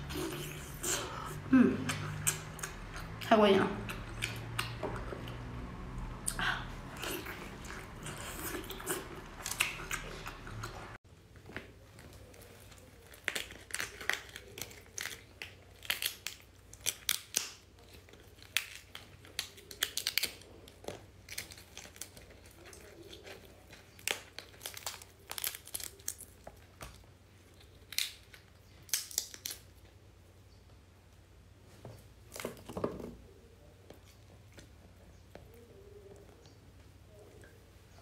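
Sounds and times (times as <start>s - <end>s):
prawn shell cracking and peeling: 11.9s - 29.9s.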